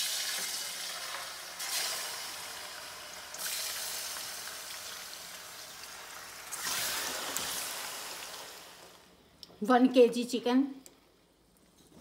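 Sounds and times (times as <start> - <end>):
chicken sizzling in hot oil: 0.0 - 9.2.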